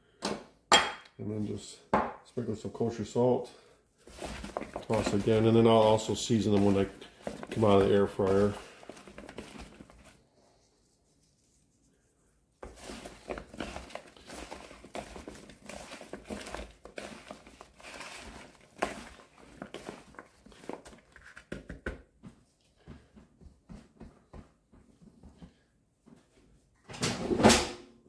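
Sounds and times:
potato sticks tossed in bowl: 4.0s - 10.2s, 12.6s - 21.0s.

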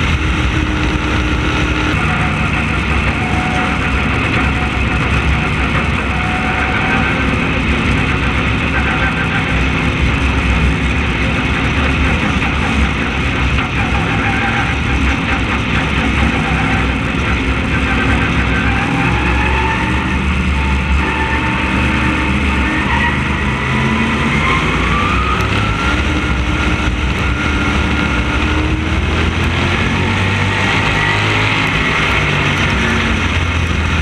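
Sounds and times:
race car engine running: 0.0s - 34.0s.

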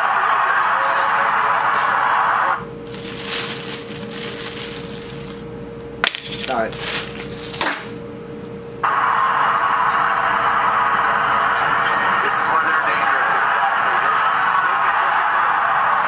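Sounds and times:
coins clinking: 0.9s - 2.0s, 2.9s - 5.4s, 6.0s - 8.0s
coin dropping and rattling: 2.9s - 5.4s, 6.0s - 8.0s.

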